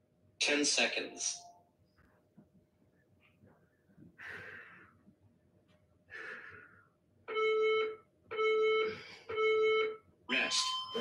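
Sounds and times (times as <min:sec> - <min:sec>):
electronic timer beep: 0:07.3 - 0:11.0.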